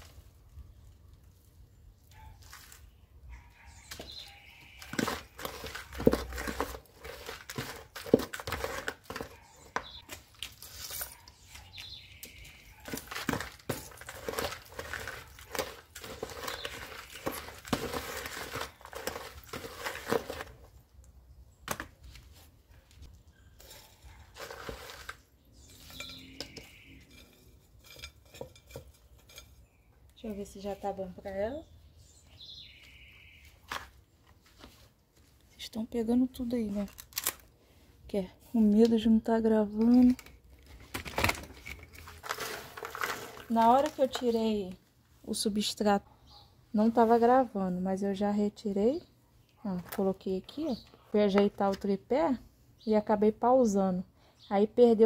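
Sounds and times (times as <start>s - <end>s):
soil crunching and scraping: 2.3s - 3.0s, 3.6s - 20.9s, 21.7s - 31.4s, 38.1s - 44.8s
trowel scratching clay pot: 3.9s - 10.1s, 12.7s - 20.7s, 23.5s - 29.7s.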